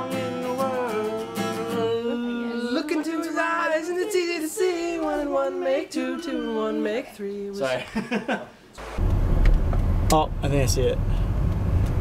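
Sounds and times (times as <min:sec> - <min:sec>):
man singing: 0:00.0 - 0:07.9.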